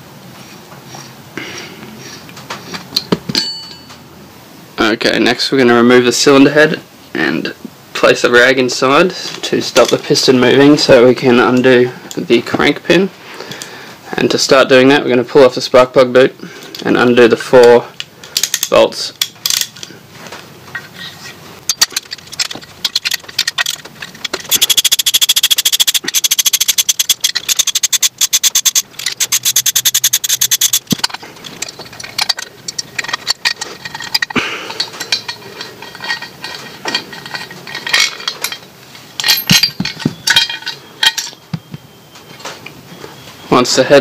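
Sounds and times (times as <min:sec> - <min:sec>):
metal clinks and scrapes: 0:02.7 - 0:04.0, 0:18.3 - 0:42.6
socket ratchet clicking: 0:21.7 - 0:36.2.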